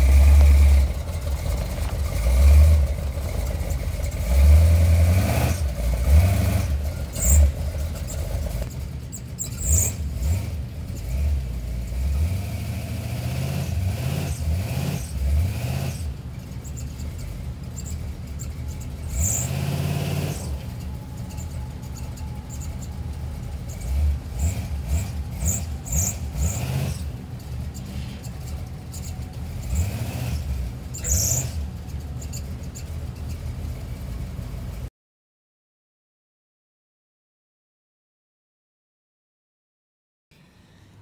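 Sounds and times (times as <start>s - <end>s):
truck engine revving: 0.0s - 34.9s
high squeaks: 6.8s - 10.1s, 16.4s - 33.8s.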